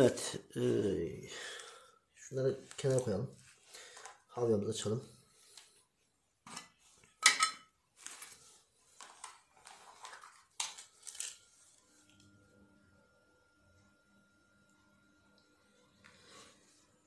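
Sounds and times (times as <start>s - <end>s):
metal tin set down: 6.5s - 8.2s
faint steady hum: 8.2s - 17.0s.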